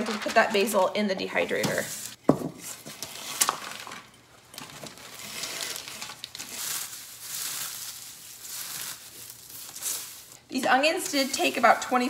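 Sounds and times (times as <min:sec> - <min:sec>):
onion flakes crunching: 0:04.9 - 0:10.4.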